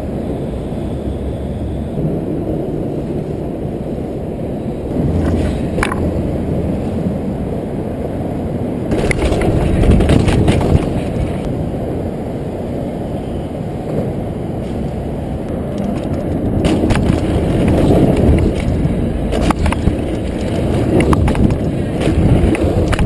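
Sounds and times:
freeway traffic rumble: 0.0s - 23.0s
wind: 0.0s - 23.0s
mountain bike rattling: 4.9s - 7.5s, 8.8s - 12.1s, 14.0s - 23.0s
sharp clatters: 8.9s - 11.5s, 15.8s - 23.0s.

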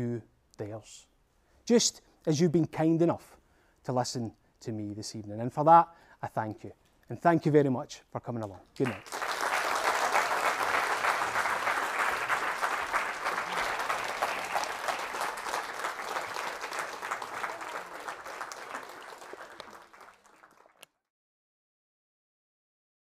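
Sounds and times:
audience applauding: 8.8s - 20.9s.

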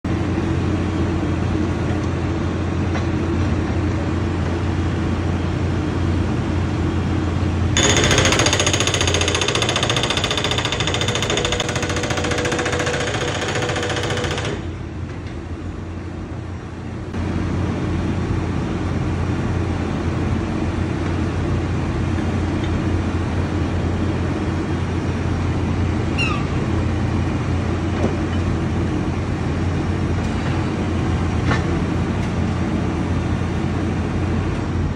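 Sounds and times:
hydraulic breaker hammering: 7.8s - 14.7s.

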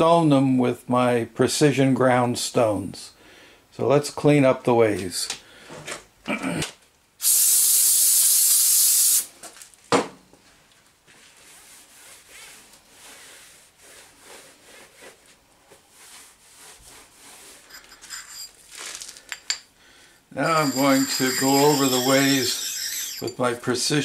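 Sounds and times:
aerosol can spraying: 7.2s - 9.3s, 20.4s - 23.3s
towel rubbing on metal: 11.5s - 18.6s, 20.4s - 23.6s.

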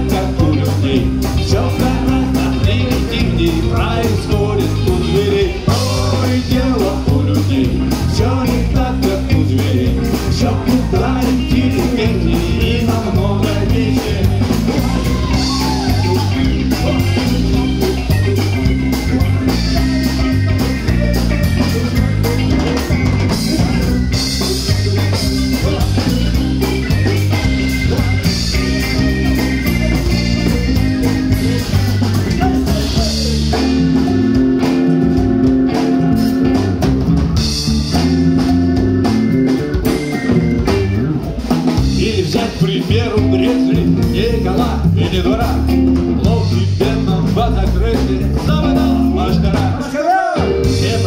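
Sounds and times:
live band playing instrumental: 0.0s - 51.0s.

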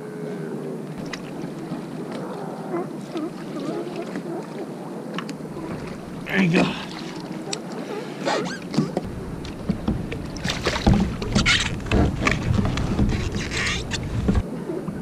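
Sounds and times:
water splashing beside kayak: 0.8s - 15.0s
wind rumble on microphone: 4.6s - 15.0s
gear knocking against hull: 8.7s - 15.0s.

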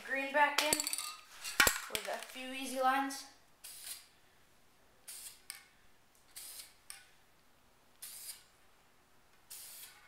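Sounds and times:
spray paint can hissing: 3.6s - 4.1s, 5.1s - 5.5s, 6.3s - 6.8s, 8.0s - 8.5s, 9.5s - 10.0s.

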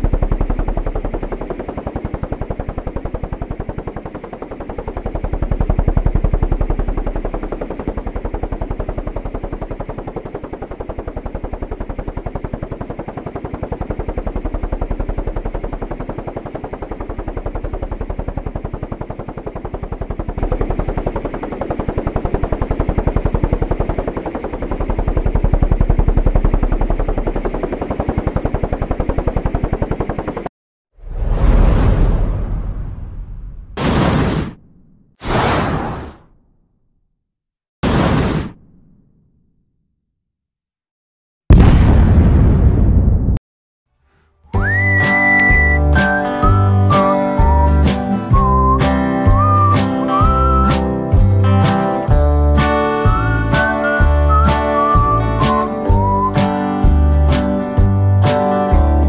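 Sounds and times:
helicopter rotor chop: 0.0s - 30.5s, 44.5s - 59.0s
high whine: 44.6s - 57.7s.

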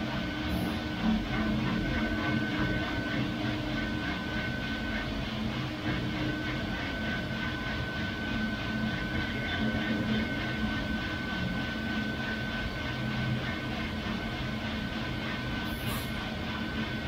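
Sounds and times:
coffee roaster mechanical rush: 0.0s - 17.0s
high whine: 0.0s - 17.0s.

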